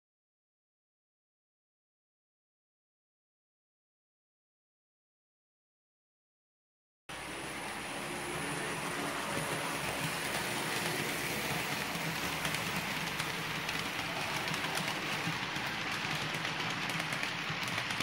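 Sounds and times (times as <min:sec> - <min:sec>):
model train wheels clattering: 0:08.4 - 0:18.0.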